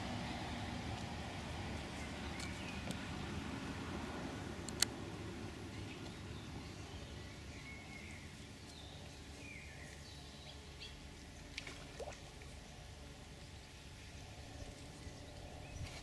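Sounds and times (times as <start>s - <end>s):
low outdoor rumble: 0.0s - 16.0s
small birds chirping: 1.9s - 3.3s, 5.7s - 11.6s.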